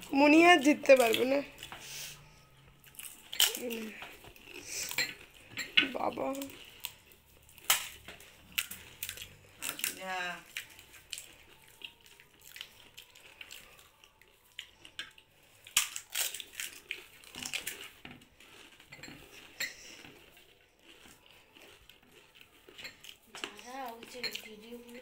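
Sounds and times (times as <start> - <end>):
crisp shells cracking and crunching: 2.8 - 25.0
dishes clinking: 18.8 - 20.1, 22.8 - 24.6.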